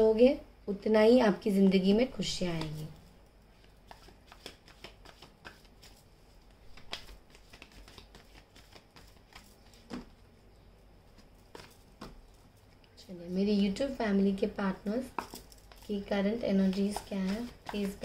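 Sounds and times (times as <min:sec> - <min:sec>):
cards being shuffled: 0:02.4 - 0:03.0, 0:03.6 - 0:10.2, 0:11.2 - 0:12.5, 0:15.1 - 0:18.0.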